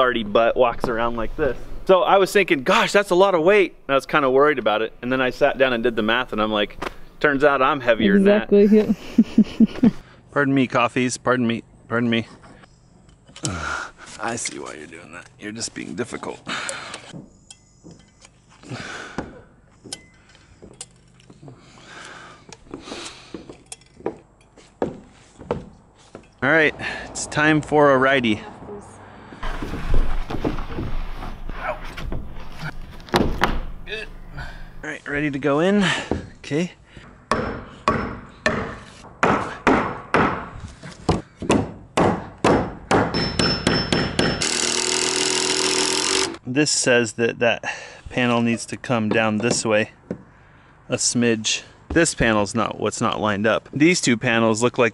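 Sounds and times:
hammer knocking on wooden board: 37.3s - 40.5s, 41.1s - 44.4s
cordless drill driving screw: 44.4s - 46.4s.

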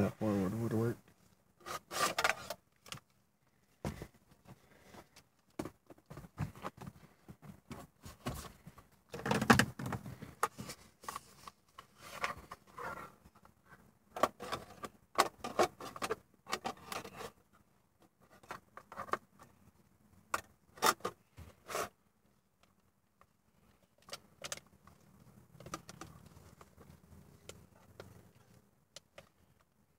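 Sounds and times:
plastic car trim clicking and knocking: 25.6s - 26.8s.

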